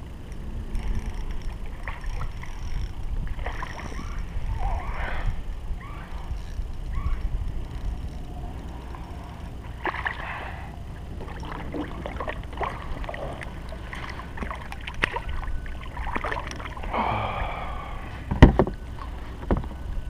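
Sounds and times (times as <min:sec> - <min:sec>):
wind rumble on microphone: 0:00.0 - 0:20.0.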